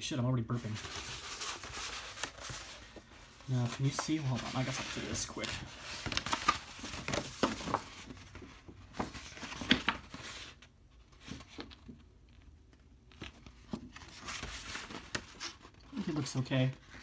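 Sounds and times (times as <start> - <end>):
stiff paper crinkling: 0.5 - 10.6.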